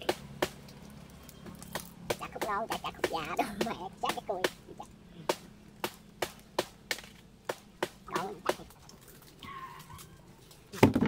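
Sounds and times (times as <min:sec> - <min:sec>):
machete chopping stalk: 0:00.0 - 0:00.7, 0:01.7 - 0:08.7.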